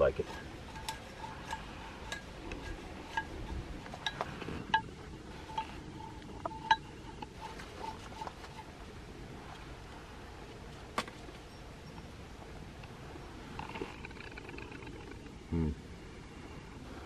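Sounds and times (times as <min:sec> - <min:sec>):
knife carving wood shavings: 0:00.0 - 0:04.4
metallic clink on steel plate: 0:00.1 - 0:08.7.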